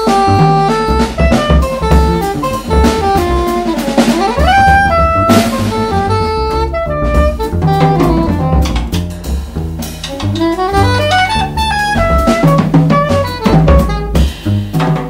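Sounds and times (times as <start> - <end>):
soprano saxophone melody: 0.0 - 9.0, 10.1 - 14.3
drums with cymbals: 0.0 - 15.0
plucked double bass: 0.0 - 15.0.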